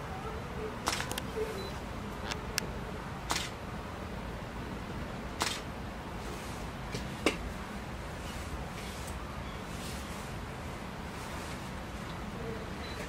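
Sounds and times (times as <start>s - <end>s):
camera shutters clicking: 0.8s - 1.3s, 3.3s - 3.6s, 5.4s - 5.7s.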